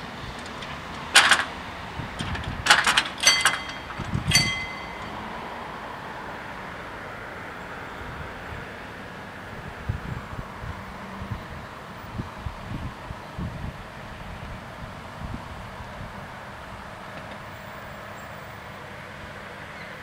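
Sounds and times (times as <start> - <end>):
wind hiss: 0.0 - 5.9
barrier arms clanking: 0.2 - 5.4.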